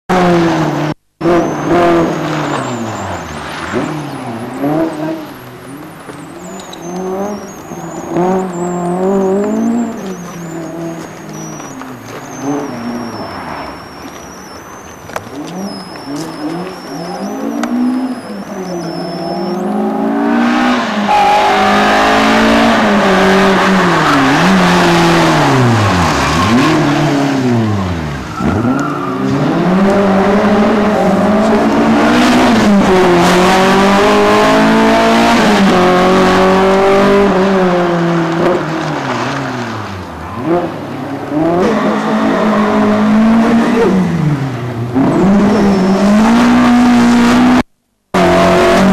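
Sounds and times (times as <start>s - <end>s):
car engine revving: 0.1s - 48.9s.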